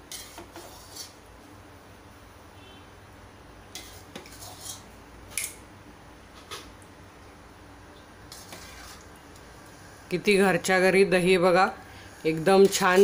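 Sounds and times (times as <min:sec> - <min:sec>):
spoon scraping a metal pot: 0:00.0 - 0:01.2, 0:03.7 - 0:05.5, 0:08.3 - 0:09.1, 0:12.0 - 0:13.0.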